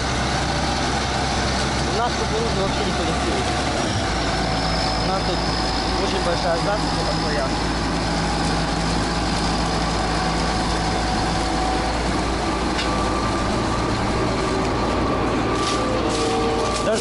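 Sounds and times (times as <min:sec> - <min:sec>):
combine harvester droning: 0:00.0 - 0:17.0.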